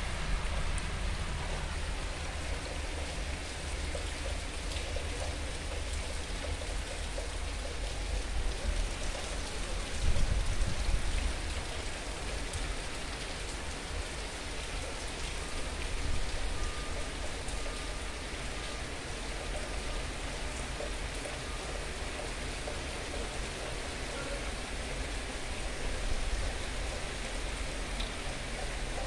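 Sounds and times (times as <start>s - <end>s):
steady rain falling: 0.0s - 29.0s.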